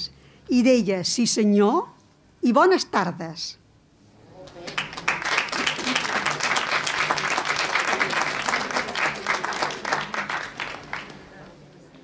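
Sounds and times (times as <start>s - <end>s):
small audience clapping: 4.3s - 11.6s.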